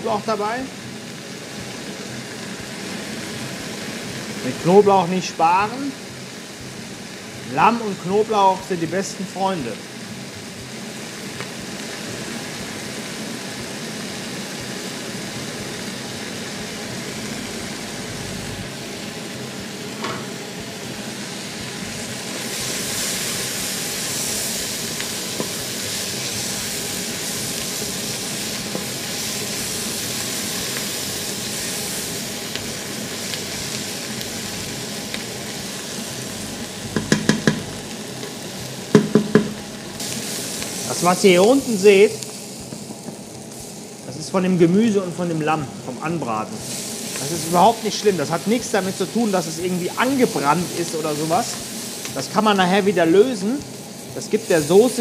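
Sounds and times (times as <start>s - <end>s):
vegetables sizzling in a pot: 0.0s - 55.0s
wooden spoon knocking against pot: 36.9s - 37.7s, 38.9s - 39.6s.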